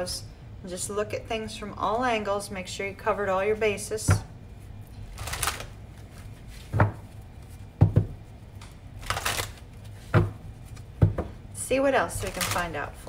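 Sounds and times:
cards shuffling: 5.0 - 7.7, 8.6 - 11.0, 12.2 - 12.8.

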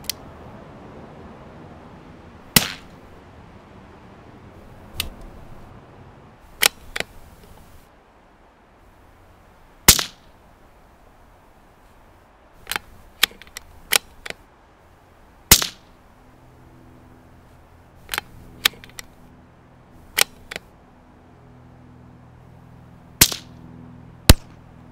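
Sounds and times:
suppressed rifle gunshots: 2.5 - 2.9, 9.9 - 10.2, 15.5 - 15.9, 23.2 - 23.5, 24.3 - 24.6
small sharp cracks and clicks: 6.6 - 7.6, 9.9 - 10.3, 12.6 - 14.4, 15.5 - 15.9, 18.0 - 19.2, 20.1 - 20.7, 23.2 - 23.6, 24.3 - 24.6.

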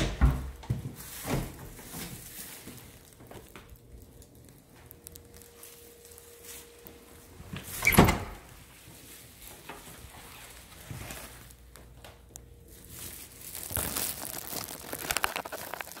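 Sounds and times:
wooden door shutting: 0.0 - 1.6, 7.6 - 8.5
rustling: 0.8 - 12.0, 12.7 - 16.0.

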